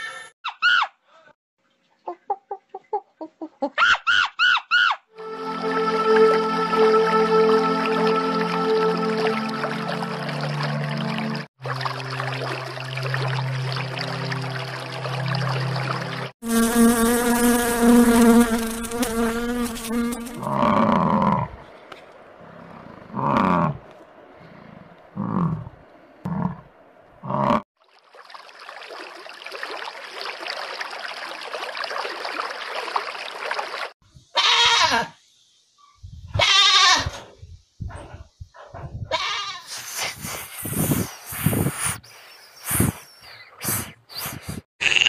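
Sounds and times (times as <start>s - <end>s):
housefly buzzing: 16.4s - 20.6s
animal bleating: 34.4s - 35.1s, 36.4s - 37.1s, 39.1s - 39.7s, 44.8s - 45.0s
aquarium water hiss: 39.7s - 44.7s.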